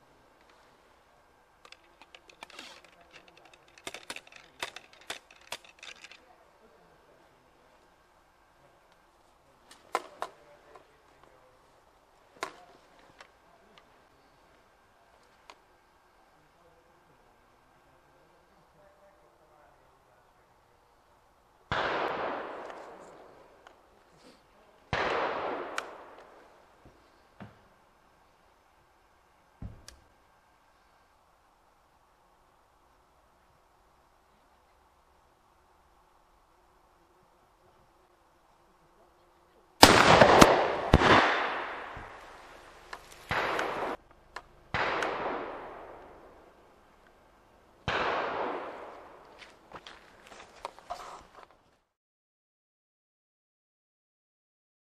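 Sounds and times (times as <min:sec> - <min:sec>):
rifle shots with echo: 0:21.7 - 0:23.4, 0:24.9 - 0:26.6, 0:39.8 - 0:44.0, 0:44.7 - 0:46.6, 0:47.8 - 0:49.3
sharp crack: 0:21.7 - 0:26.5, 0:39.8 - 0:47.2, 0:47.8 - 0:49.9.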